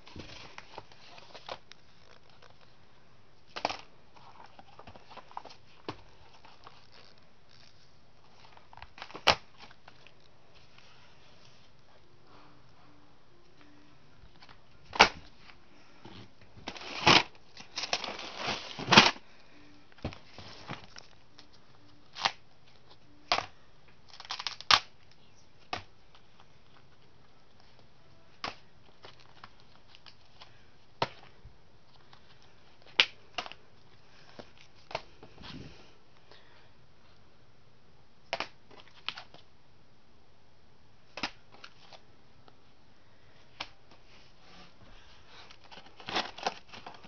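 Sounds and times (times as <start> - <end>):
cardboard record sleeves flipped: 14.4 - 19.2.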